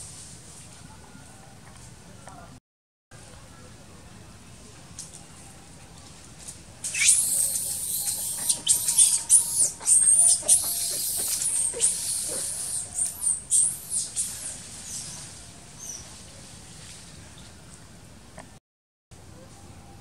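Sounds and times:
monkey squealing: 0:06.9 - 0:14.3.

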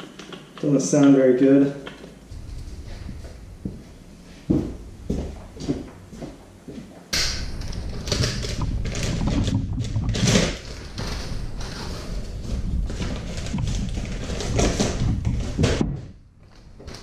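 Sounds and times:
plastic wrapping crackling: 0:07.3 - 0:15.8.

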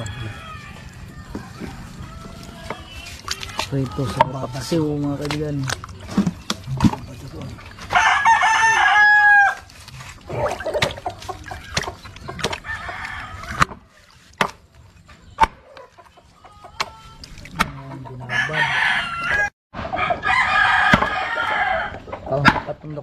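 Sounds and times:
roosters crowing: 0:00.0 - 0:04.9, 0:07.8 - 0:14.0, 0:18.1 - 0:22.4
hens clucking: 0:00.0 - 0:08.8, 0:09.9 - 0:20.2
machete chopping fish on board: 0:11.7 - 0:12.6, 0:14.4 - 0:14.6, 0:15.4 - 0:15.6, 0:20.8 - 0:21.2.

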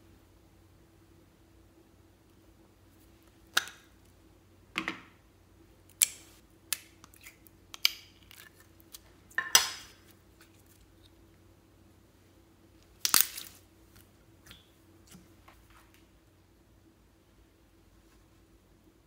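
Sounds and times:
wet slime squelch: 0:12.8 - 0:15.8.

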